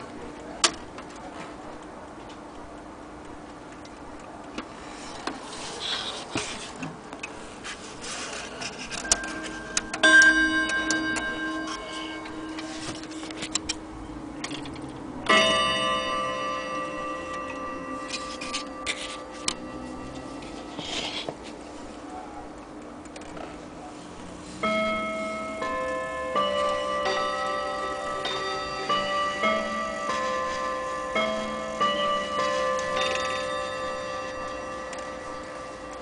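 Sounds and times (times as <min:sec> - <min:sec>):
clock chime rods ringing: 0:08.9 - 0:13.9, 0:15.2 - 0:21.2, 0:24.6 - 0:36.0
clock ticking: 0:08.9 - 0:20.6.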